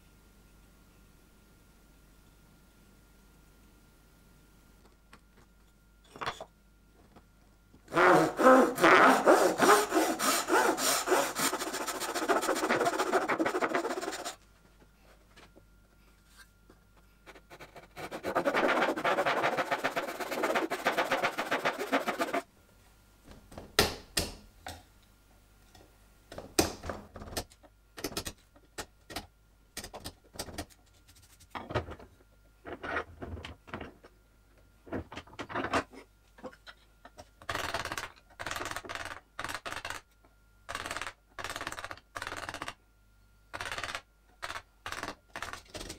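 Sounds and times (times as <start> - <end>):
hand saw cutting wood: 7.9 - 14.4, 17.6 - 22.4.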